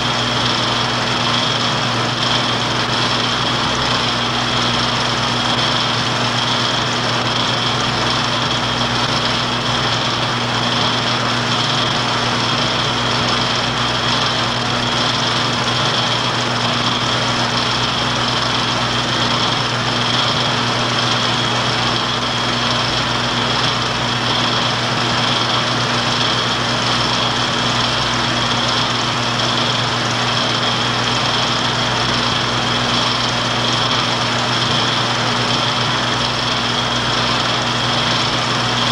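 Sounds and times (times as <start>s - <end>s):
film projector whirring: 0.0s - 38.9s.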